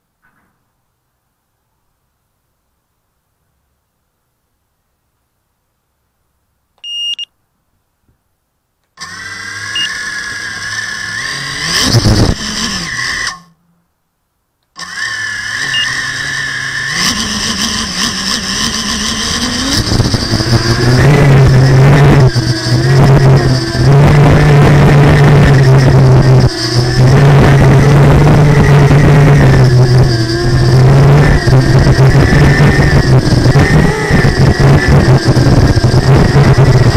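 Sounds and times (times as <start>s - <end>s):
short electronic beep: 6.8s - 7.3s, 15.7s - 16.0s
electric motors whining: 9.0s - 13.6s, 14.8s - 36.9s.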